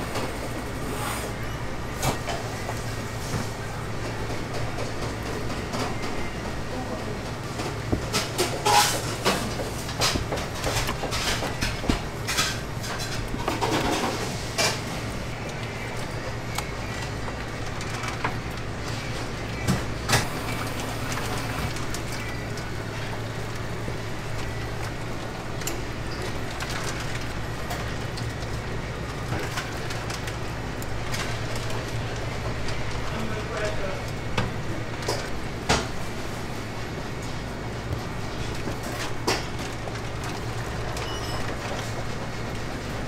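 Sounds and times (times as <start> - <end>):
metal utensils and dishes clinking: 8.1 - 14.8.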